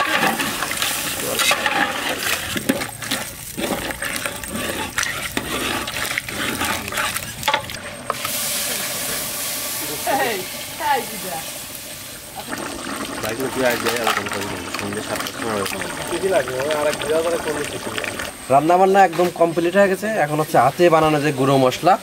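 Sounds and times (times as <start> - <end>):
spatula scraping metal pot: 0.0 - 8.4
water pouring into metal pot: 0.0 - 22.0.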